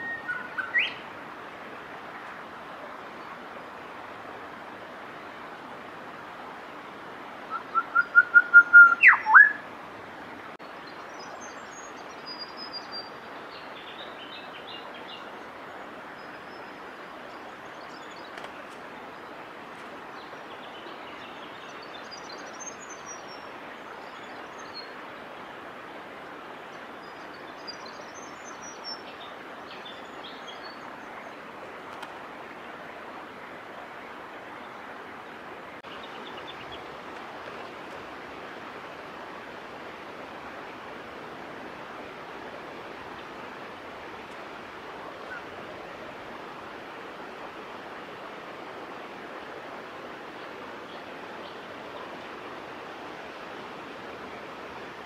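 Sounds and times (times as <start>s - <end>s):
bird whistled song: 0.0s - 1.0s, 7.5s - 9.6s.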